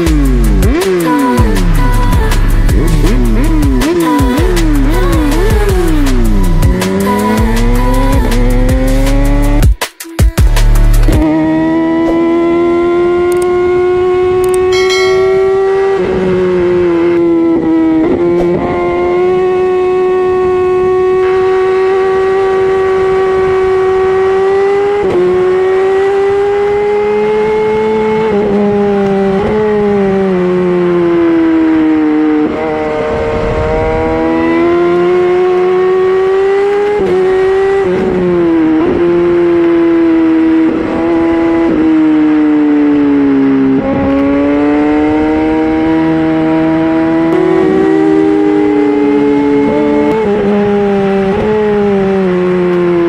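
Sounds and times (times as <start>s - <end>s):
motorcycle engine revving high: 0.0s - 9.7s, 10.8s - 53.0s
wind rush: 32.8s - 34.6s.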